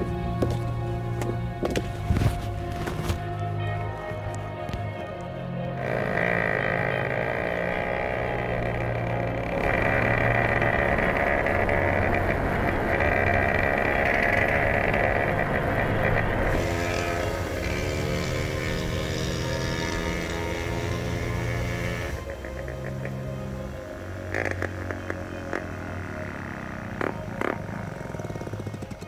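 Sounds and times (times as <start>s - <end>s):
small motorcycle engine running: 5.8s - 29.0s.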